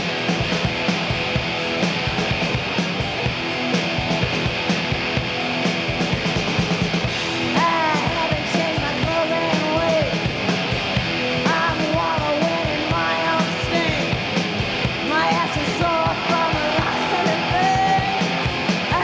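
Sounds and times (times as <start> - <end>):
distorted electric guitars: 0.0 - 19.0
woman singing: 7.5 - 10.2, 11.4 - 14.2, 15.0 - 19.0.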